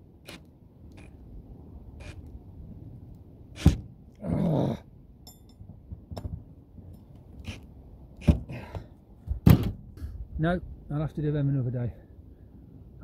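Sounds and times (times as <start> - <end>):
person grunting with effort: 4.2 - 4.9.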